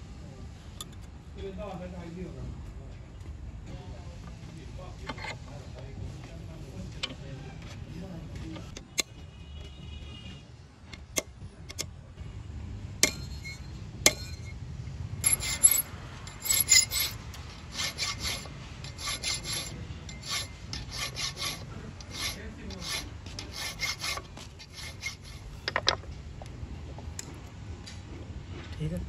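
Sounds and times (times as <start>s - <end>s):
file rasping on saw teeth: 15.2s - 25.5s.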